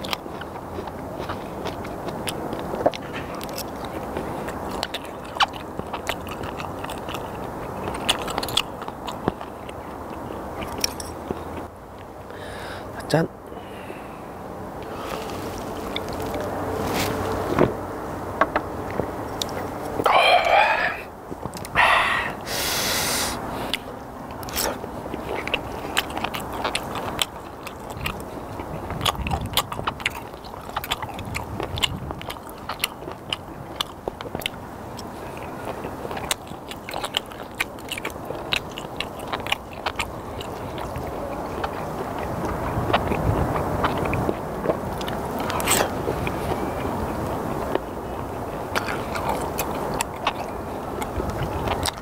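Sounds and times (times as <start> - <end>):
chewing raw fish: 0.0 - 12.2, 14.8 - 17.6, 18.9 - 52.0
breathy exhale: 12.3 - 12.9, 13.5 - 15.3, 20.1 - 21.1, 21.7 - 23.7
person grunting: 20.0 - 21.1, 21.7 - 23.3.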